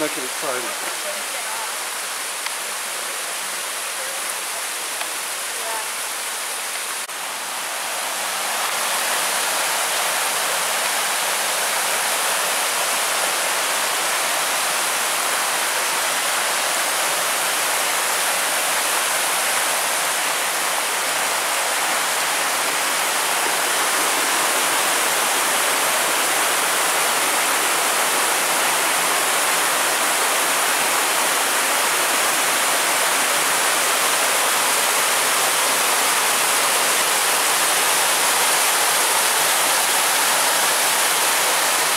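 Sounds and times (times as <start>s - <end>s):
creek rushing over rocks: 0.0s - 41.9s.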